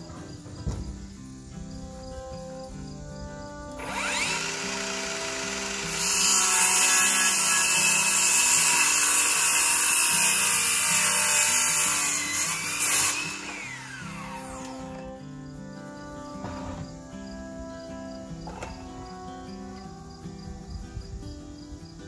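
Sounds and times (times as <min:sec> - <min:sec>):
power saw whining: 0:03.6 - 0:15.4, 0:18.3 - 0:19.2
saw cutting wooden board: 0:03.8 - 0:15.1.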